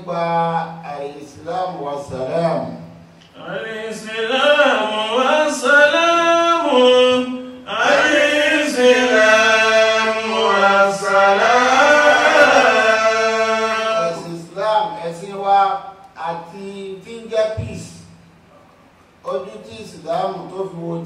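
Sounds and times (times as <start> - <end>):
man chanting: 3.4 - 18.0.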